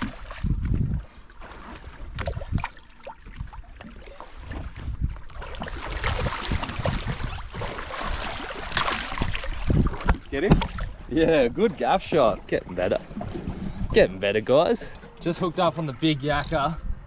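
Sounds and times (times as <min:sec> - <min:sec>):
wind buffeting microphone: 0:00.0 - 0:03.7, 0:04.3 - 0:14.4
fish thrashing and splashing: 0:00.0 - 0:11.0
water slopping against boat hull: 0:00.0 - 0:14.1.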